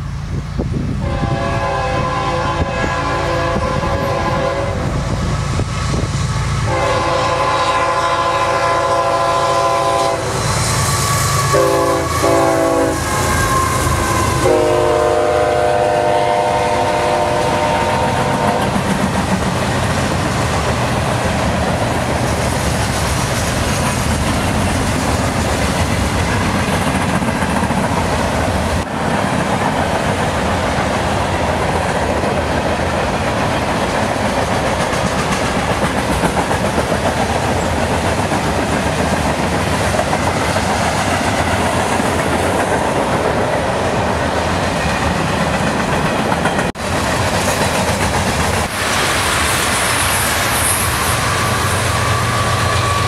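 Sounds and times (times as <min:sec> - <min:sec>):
freight train rumbling: 0:00.0 - 0:53.0
locomotive air horn blasts: 0:01.0 - 0:05.0, 0:06.6 - 0:18.8, 0:50.7 - 0:53.0
wheels clacking over rail joints: 0:18.3 - 0:51.6.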